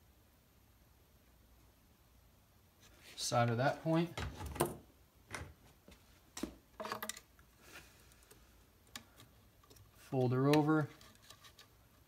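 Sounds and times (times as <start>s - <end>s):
faint clicks and taps of wires: 8.1s - 12.0s.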